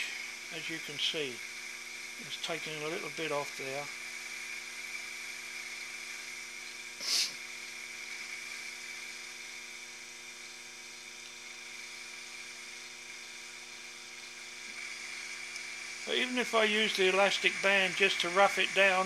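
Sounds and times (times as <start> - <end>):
brief hiss: 7.0 - 7.5.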